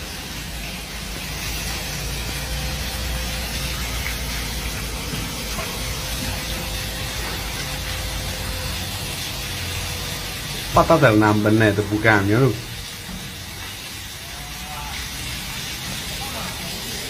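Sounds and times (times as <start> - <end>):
truck engine running: 0.0 - 13.1
street noise hiss: 0.0 - 17.0.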